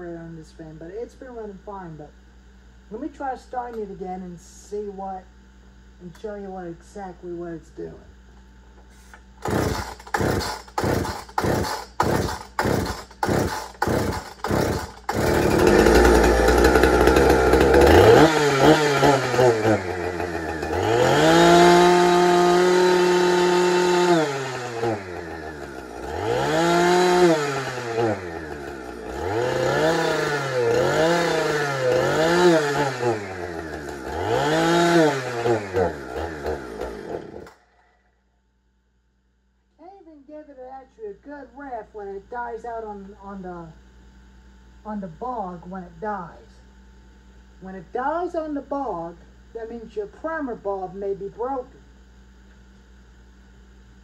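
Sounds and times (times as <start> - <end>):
chainsaw starting knocks: 9.4 - 37.6
chainsaw revving: 9.4 - 37.7.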